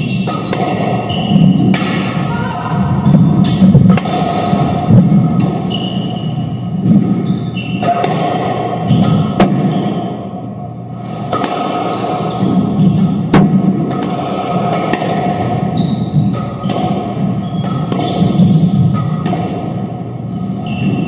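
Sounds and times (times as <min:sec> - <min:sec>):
squash ball knocks: 0:00.2 - 0:02.2, 0:03.1 - 0:05.7, 0:07.8 - 0:10.0, 0:11.2 - 0:15.5, 0:16.3 - 0:19.9.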